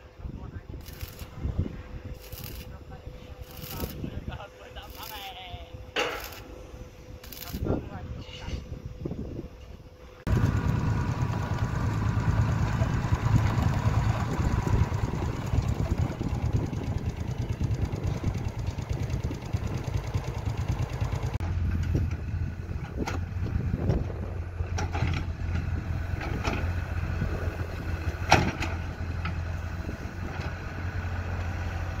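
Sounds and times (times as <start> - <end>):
excavator engine humming: 10.3 - 32.0.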